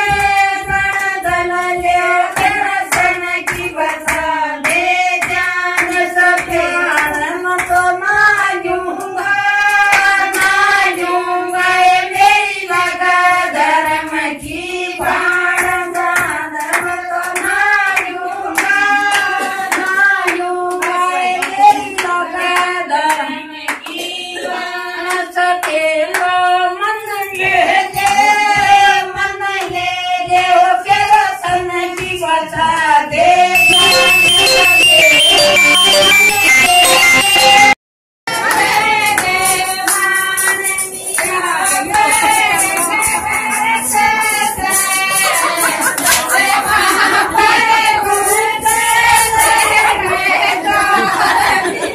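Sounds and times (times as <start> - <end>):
rhythmic hand claps: 0.0 - 26.6, 27.7 - 51.8
women singing folk song: 0.0 - 33.6.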